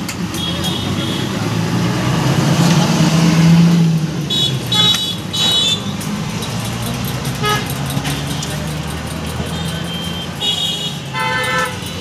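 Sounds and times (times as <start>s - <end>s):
vehicle engine passing: 1.4s - 4.8s.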